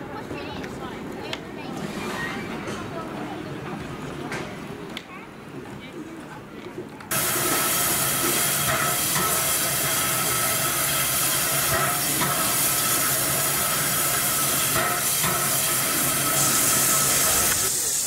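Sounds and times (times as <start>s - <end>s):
steam locomotive hissing: 7.1s - 18.0s.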